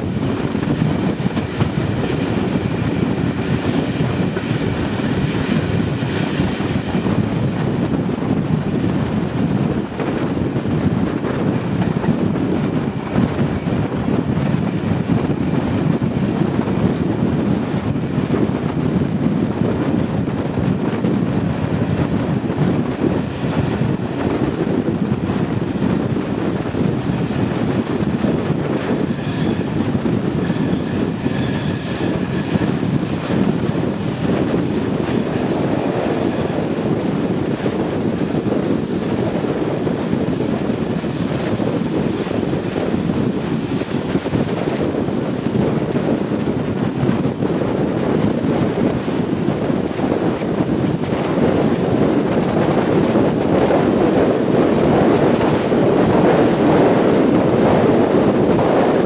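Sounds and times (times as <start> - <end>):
train rolling rumble: 0.0 - 59.0
high wheel squeal: 28.9 - 32.8, 36.3 - 45.8.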